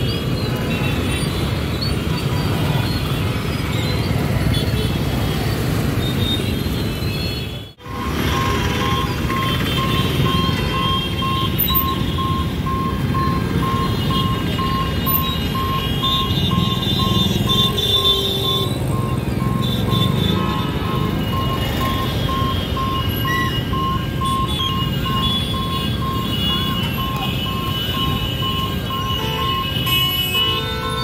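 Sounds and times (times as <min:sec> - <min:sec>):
road traffic idling and passing: 0:00.0 - 0:31.0
electronic warning beeper: 0:07.8 - 0:17.7.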